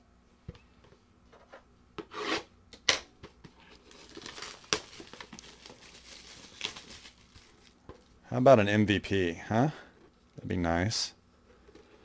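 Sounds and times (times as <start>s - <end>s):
plastic shrink-wrap crinkling: 3.6s - 8.2s.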